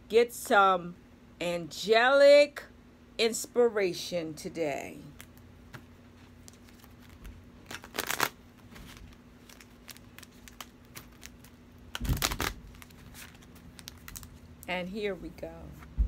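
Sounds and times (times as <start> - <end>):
cards being shuffled: 5.2 - 14.4.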